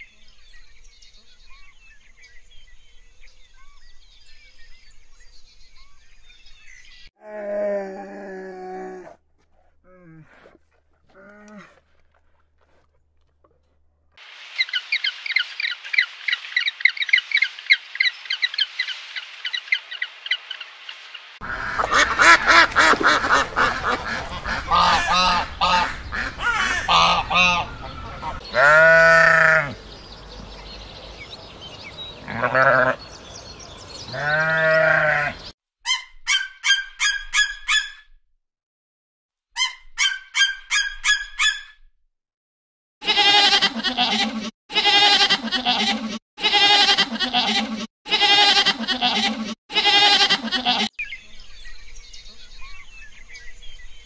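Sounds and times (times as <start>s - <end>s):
goats bleating: 28.3s - 29.8s, 32.2s - 33.0s, 34.1s - 35.4s, 43.0s - 50.9s.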